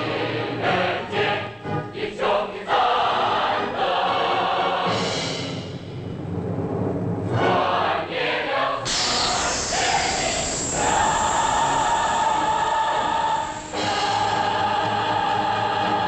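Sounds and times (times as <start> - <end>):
choir singing: 0.0 - 5.8, 7.3 - 16.0.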